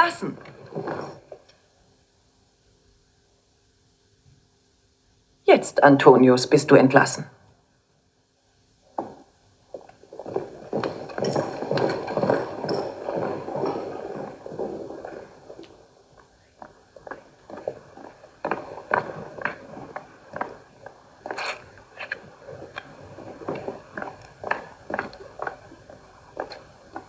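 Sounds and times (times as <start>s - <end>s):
film soundtrack on television: 0.0s - 1.5s.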